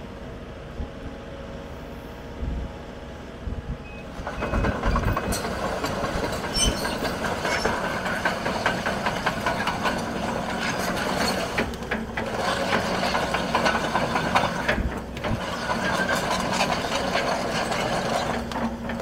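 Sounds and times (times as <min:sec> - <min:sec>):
excavator diesel engine running: 0:00.0 - 0:19.0
track chains clanking: 0:04.1 - 0:19.0.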